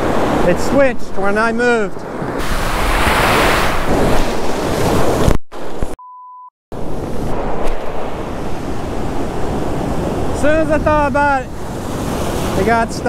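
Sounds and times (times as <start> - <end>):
ocean surf breaking: 0.0 - 5.4, 6.8 - 13.0
censor beep: 6.0 - 6.5
wind buffeting microphone: 6.8 - 13.0.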